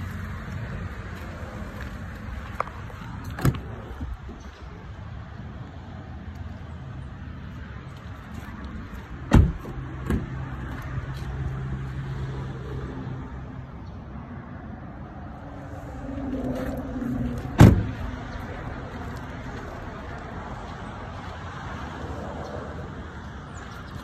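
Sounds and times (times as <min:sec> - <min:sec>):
car doors slamming: 0:09.3 - 0:10.4, 0:17.5 - 0:18.1.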